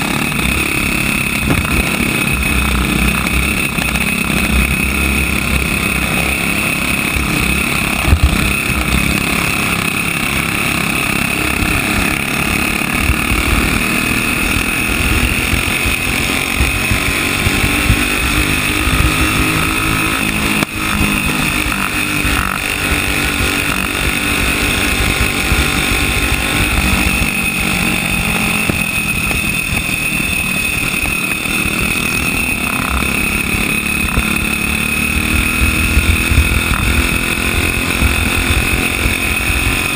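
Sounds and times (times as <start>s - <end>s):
racing kart engine: 0.0s - 39.9s
wind buffeting microphone: 35.2s - 39.9s.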